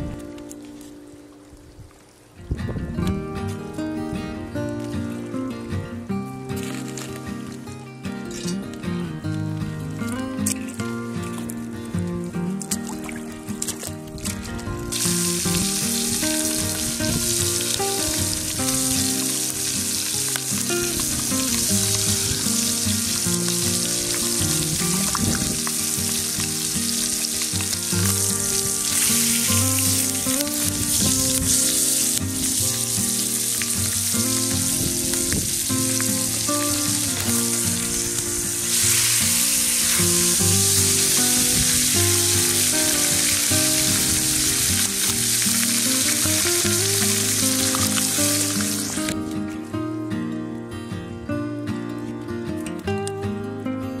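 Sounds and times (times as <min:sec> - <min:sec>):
fish sizzling in a skillet: 0:12.7 - 0:49.2.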